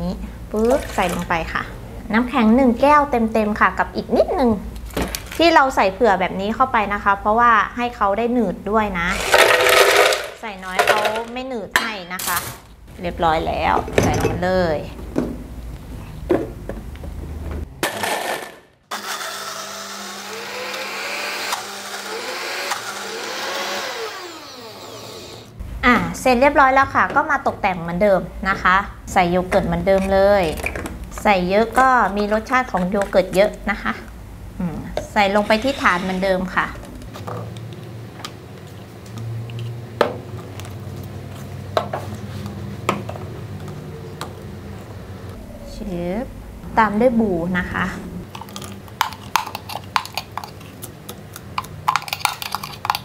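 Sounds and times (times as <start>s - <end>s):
blender crushing ice: 9.1s - 11.0s, 17.8s - 25.6s, 51.9s - 53.0s
steady low hum: 43.4s - 49.0s.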